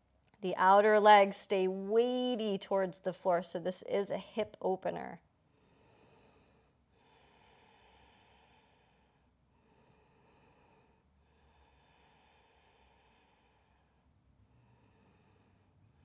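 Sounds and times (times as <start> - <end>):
faint slow breathing: 5.5 - 16.0.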